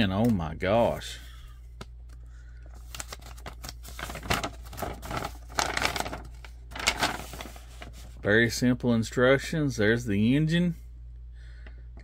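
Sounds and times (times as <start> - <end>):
paper rustling and crinkling: 2.6 - 8.2.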